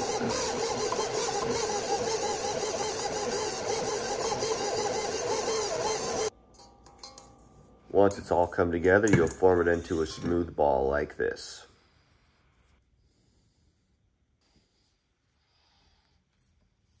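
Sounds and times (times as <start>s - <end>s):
stand mixer motor running: 0.0s - 6.3s.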